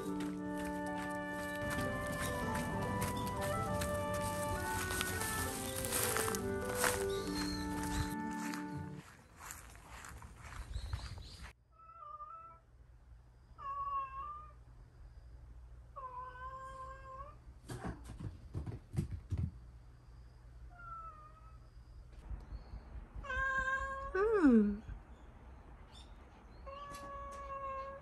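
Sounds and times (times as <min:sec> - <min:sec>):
young cat meowing: 0:23.2 - 0:24.4.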